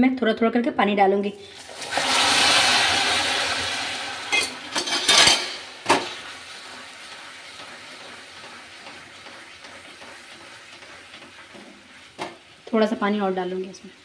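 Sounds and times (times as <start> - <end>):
water sizzling on hot caramel: 1.4 - 14.0
spatula knocking against pan: 8.4 - 12.4.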